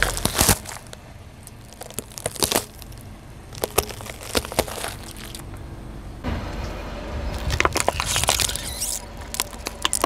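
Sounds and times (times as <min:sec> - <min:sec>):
sharp cracks and snaps: 0:00.0 - 0:05.4, 0:07.5 - 0:10.0
car tyre rumbling: 0:00.0 - 0:10.0.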